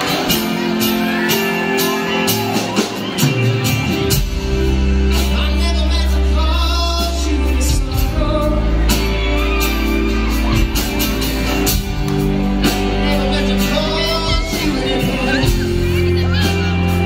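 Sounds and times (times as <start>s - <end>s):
live band playing: 0.0s - 17.0s
steady drum beat: 0.0s - 17.0s
male and female vocals: 5.4s - 9.6s, 13.0s - 17.0s.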